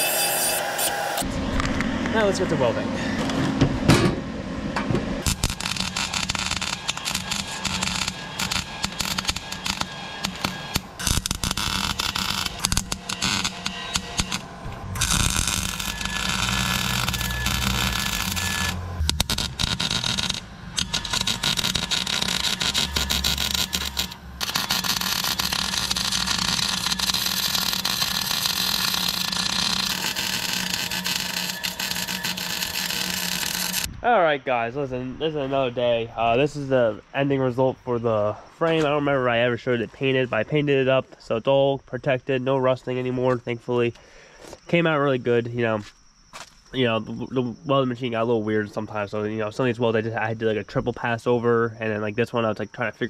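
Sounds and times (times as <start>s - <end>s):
welding arc crackling: 5.2s - 33.9s.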